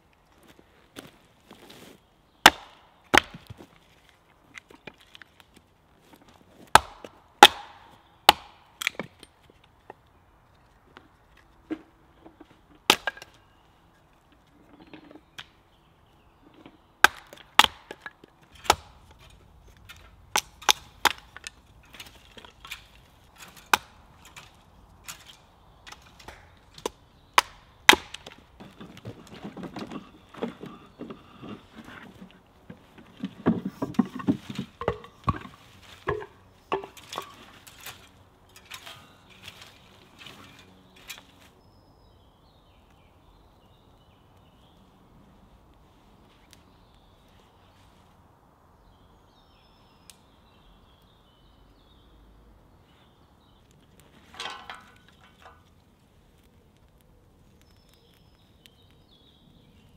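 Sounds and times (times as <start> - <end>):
hatchet chopping wood: 2.4 - 3.6, 6.7 - 9.3, 12.8 - 13.3, 17.0 - 24.0, 25.9 - 29.1
wood scraping and knocking: 27.9 - 41.3, 54.2 - 55.8.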